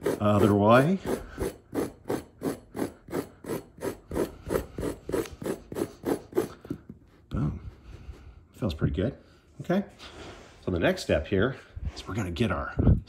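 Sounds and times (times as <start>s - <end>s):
fork scraping through carpet: 0.0s - 8.2s.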